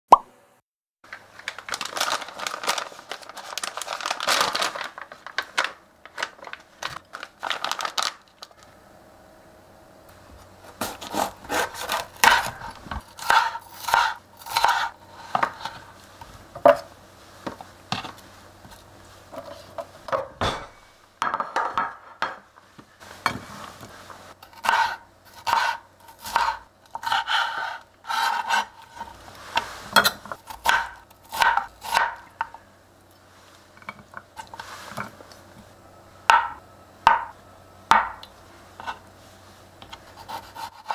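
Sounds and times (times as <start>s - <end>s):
vegetables handled in metal tray: 1.1s - 8.7s.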